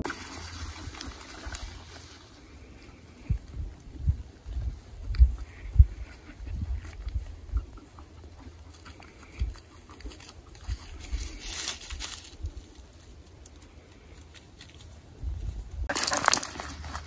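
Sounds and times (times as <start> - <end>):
dog rustling in dry grass: 9.9 - 13.3
leaf crackles: 10.0 - 17.0.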